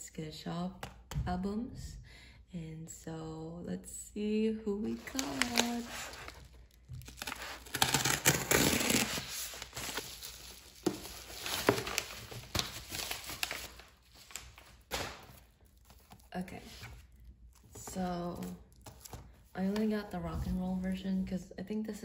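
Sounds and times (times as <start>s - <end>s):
paper and plastic crinkling: 4.9s - 20.6s.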